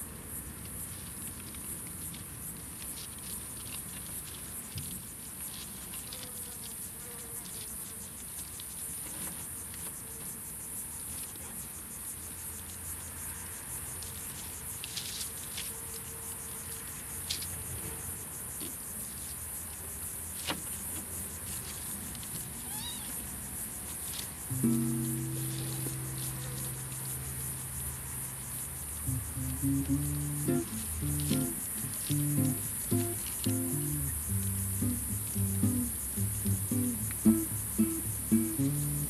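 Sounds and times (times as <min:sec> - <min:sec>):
high insect drone: 0:00.0 - 0:39.0
faint kitten mew: 0:22.6 - 0:23.2
kittens scuffling in dry leaves: 0:23.8 - 0:35.5.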